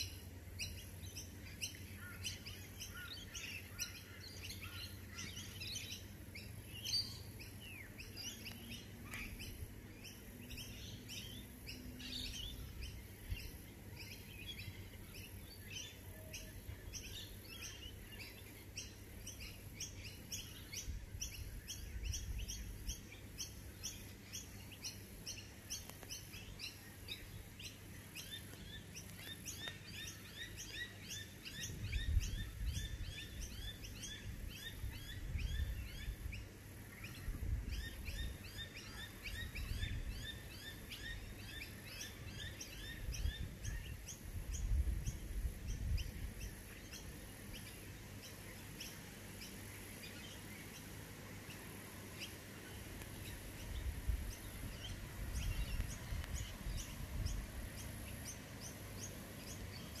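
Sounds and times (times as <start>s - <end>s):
small birds chirping: 0.0s - 60.0s
wind rumbling on microphone: 20.7s - 23.0s, 31.6s - 38.6s, 39.2s - 41.4s, 42.6s - 47.2s, 53.2s - 60.0s.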